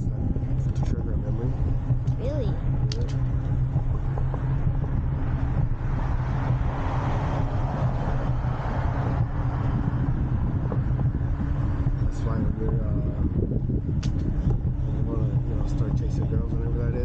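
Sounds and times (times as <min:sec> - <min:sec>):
electric bike hum on concrete: 0:00.0 - 0:17.0
wind on microphone: 0:00.0 - 0:17.0.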